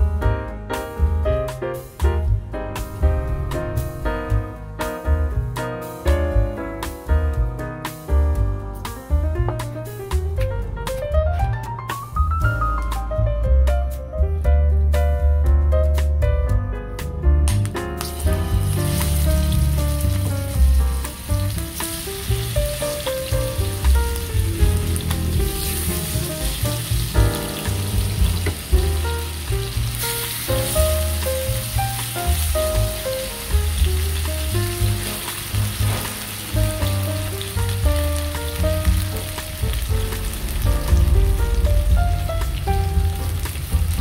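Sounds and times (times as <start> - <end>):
background music with bass line: 0.0 - 44.0
chicken sizzling in hot oil: 17.5 - 44.0.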